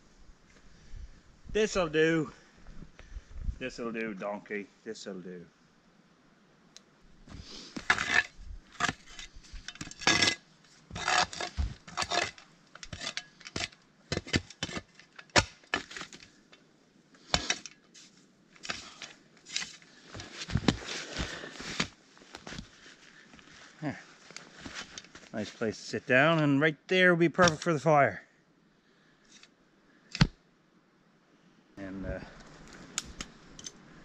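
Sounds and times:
snow scraped and brushed off log: 17.4s - 21.9s.

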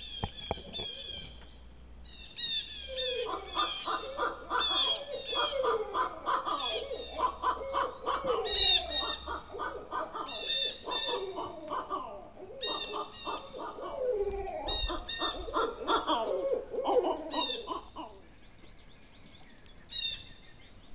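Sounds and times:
owl hooting and cackling: 2.1s - 18.3s.

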